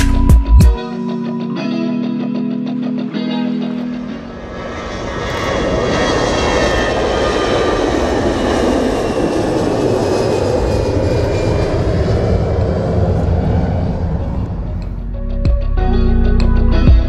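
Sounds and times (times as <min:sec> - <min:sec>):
jet engines rumbling at takeoff: 0:02.5 - 0:15.2.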